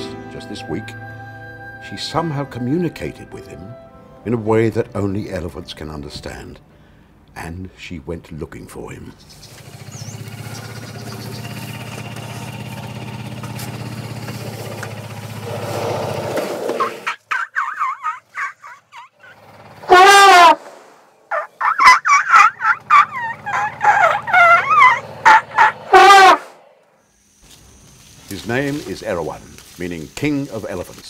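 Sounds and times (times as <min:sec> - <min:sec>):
elephants squeaking and chirping: 0:15.4 - 0:20.6, 0:21.3 - 0:26.5
elephant trumpeting: 0:15.4 - 0:20.7, 0:21.3 - 0:26.8.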